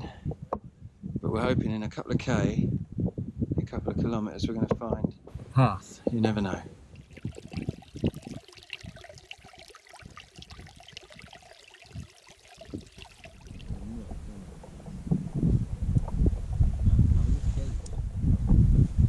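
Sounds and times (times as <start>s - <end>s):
wind rumble on microphone: 0.0s - 9.0s, 11.9s - 19.0s
trickling water: 6.1s - 14.7s.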